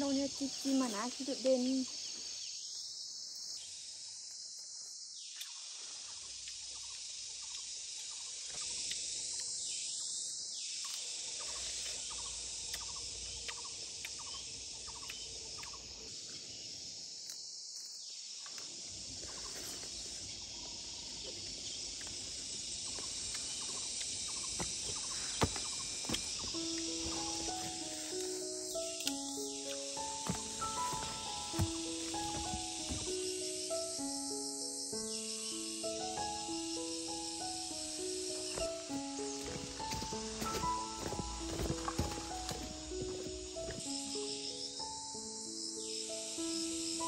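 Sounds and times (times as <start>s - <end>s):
high-pitched insect chorus: 0.0s - 47.0s.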